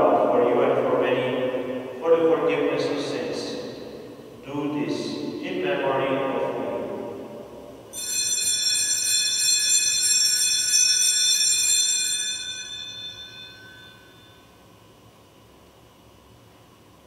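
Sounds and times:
altar bells ringing: 0:07.9 - 0:14.6.

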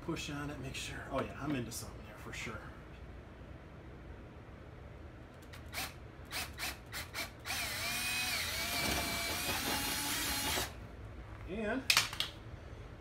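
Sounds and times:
cordless drill whining: 0:05.5 - 0:10.8.

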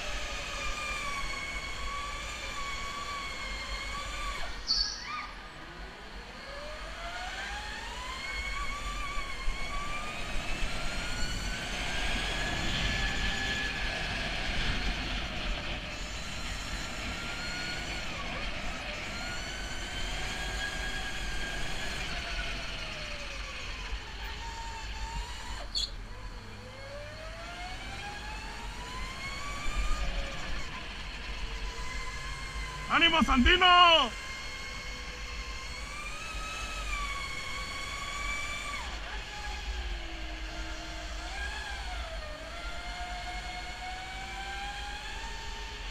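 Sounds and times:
electric motor whining: 0:00.0 - 0:45.9
wind and tyre rumble: 0:08.5 - 0:24.2.

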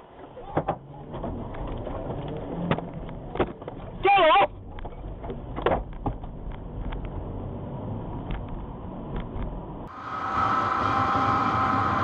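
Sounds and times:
car road and engine rumble: 0:00.0 - 0:12.0
steady high whine: 0:09.6 - 0:12.0.

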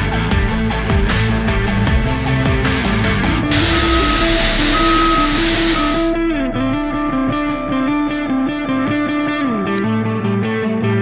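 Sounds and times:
distorted electric guitar riff: 0:02.2 - 0:06.4.

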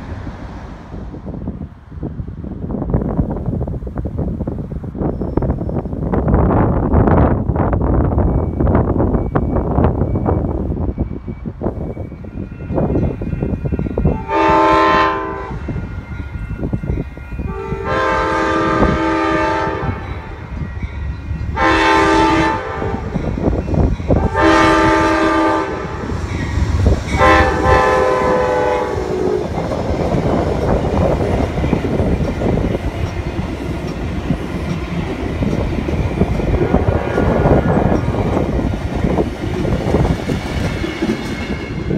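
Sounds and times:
train wheels rumbling on rails: 0:00.0 - 0:41.9
train air horn blasts: 0:14.1 - 0:16.0, 0:17.5 - 0:20.4, 0:21.5 - 0:23.2, 0:24.2 - 0:26.2, 0:27.1 - 0:29.6, 0:36.4 - 0:38.1.

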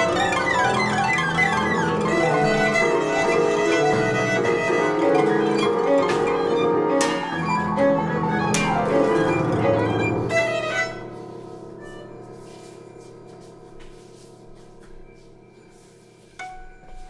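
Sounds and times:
plucked and struck string notes: 0:00.0 - 0:10.4
violin bowing: 0:00.0 - 0:12.4.

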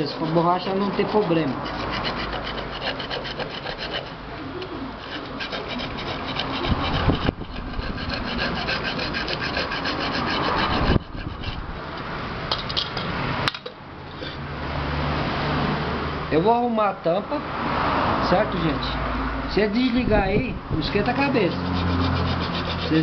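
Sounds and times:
sandpaper rasping on metal: 0:00.0 - 0:04.2, 0:05.0 - 0:11.6, 0:20.9 - 0:23.0.

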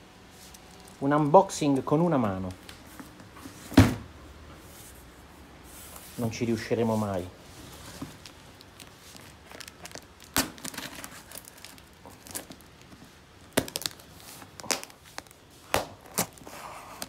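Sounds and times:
plastic mailer tearing and crinkling: 0:07.6 - 0:17.0.

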